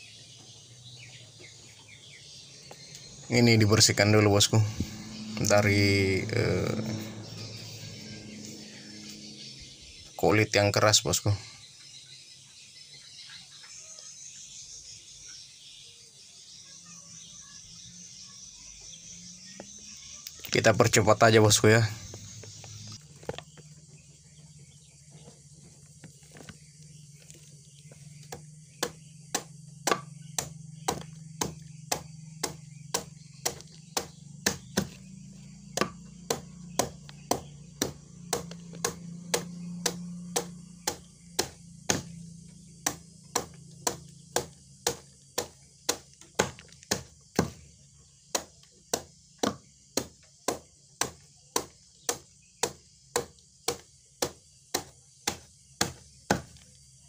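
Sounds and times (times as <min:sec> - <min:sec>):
low steady hum: 0:00.0 - 0:10.2
knife chopping on wooden board: 0:28.2 - 0:35.1, 0:35.7 - 0:42.2, 0:42.8 - 0:47.6, 0:48.3 - 0:56.6.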